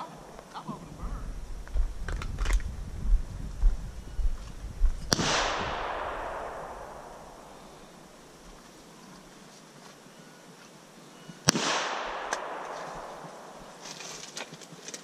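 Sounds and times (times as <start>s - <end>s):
pistol shot with echo: 5.1s - 8.2s, 11.5s - 13.8s.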